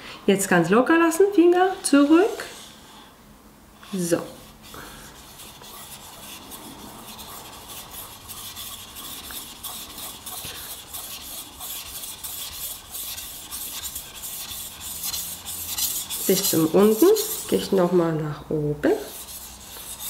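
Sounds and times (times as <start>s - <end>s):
knife scraping on whetstone: 3.9s - 17.7s.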